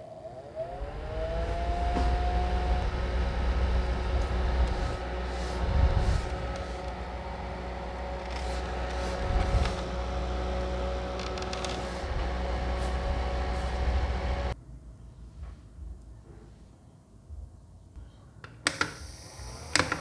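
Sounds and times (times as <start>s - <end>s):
air cooler fan whirring: 0.0s - 14.6s.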